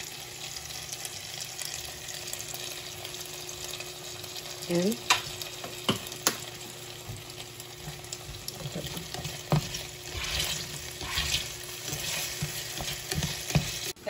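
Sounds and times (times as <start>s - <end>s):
potatoes sizzling in a frying pan: 0.0s - 14.0s
spatula scraping and knocking pan: 7.8s - 14.0s.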